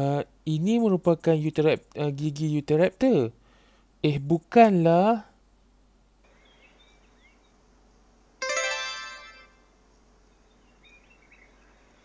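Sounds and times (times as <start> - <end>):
bright plucked chime note: 8.4 - 9.6.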